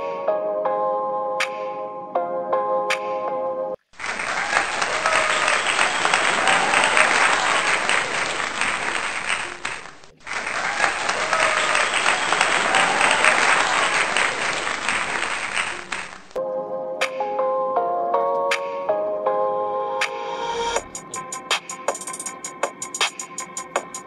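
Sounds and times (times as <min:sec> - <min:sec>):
crowd applause with cheering: 0:04.0 - 0:16.4.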